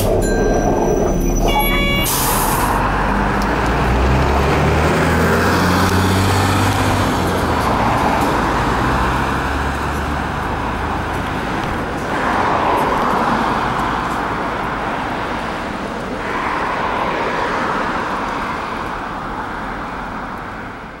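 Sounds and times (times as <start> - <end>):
bus diesel engine running: 0.0 - 21.0
road noise: 0.0 - 21.0.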